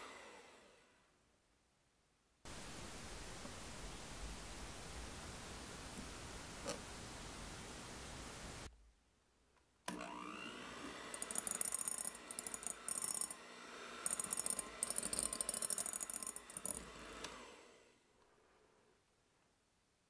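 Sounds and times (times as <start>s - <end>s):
electric hand mixer whine: 0.0s - 0.9s, 9.9s - 18.0s.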